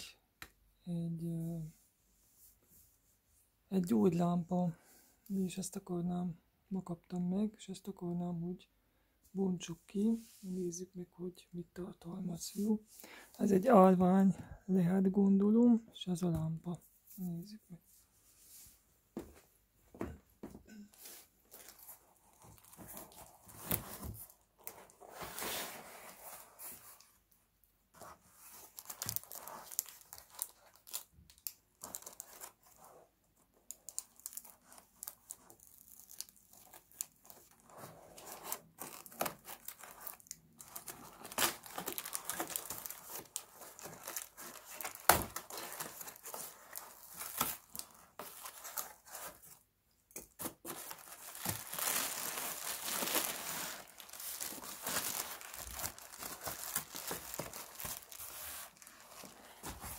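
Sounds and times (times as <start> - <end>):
cardboard tearing and crinkling: 28.4 - 32.9, 33.7 - 49.6, 50.3 - 59.9.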